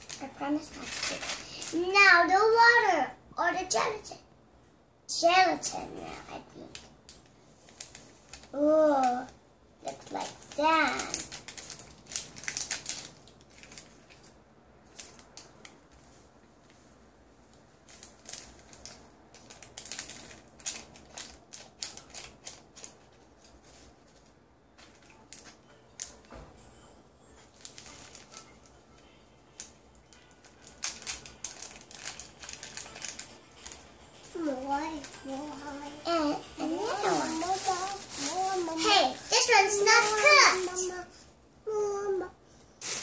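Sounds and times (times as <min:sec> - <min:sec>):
paper packets tearing and rustling: 0:00.0 - 0:02.1, 0:07.7 - 0:15.8, 0:17.8 - 0:26.3, 0:27.5 - 0:28.7, 0:29.6 - 0:41.1, 0:42.8 - 0:43.0.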